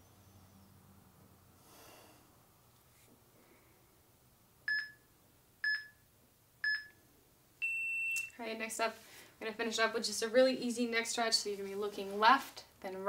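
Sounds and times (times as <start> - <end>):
high electronic timer beep: 4.7 - 5.0, 7.6 - 8.3.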